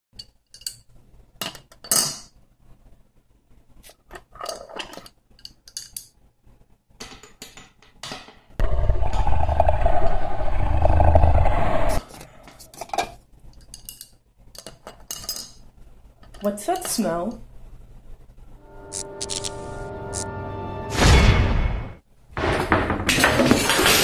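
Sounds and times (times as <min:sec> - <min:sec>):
loud fluttering rumble: 0:08.6 - 0:12.0.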